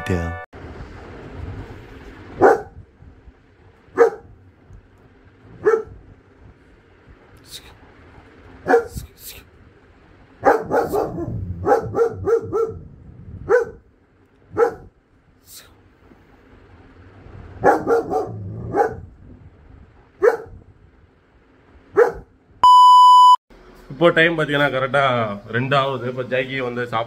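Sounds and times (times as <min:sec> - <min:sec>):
dog barking: 0:02.4 - 0:02.8, 0:03.9 - 0:04.4, 0:05.5 - 0:06.0, 0:08.6 - 0:09.0, 0:10.4 - 0:13.8, 0:14.5 - 0:14.9, 0:17.6 - 0:19.1, 0:20.2 - 0:20.6, 0:21.9 - 0:22.3.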